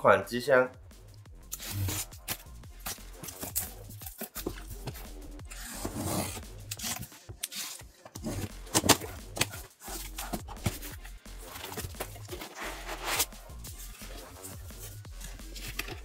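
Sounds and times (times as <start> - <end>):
packaging rustling and scraping: 1.5 - 16.0.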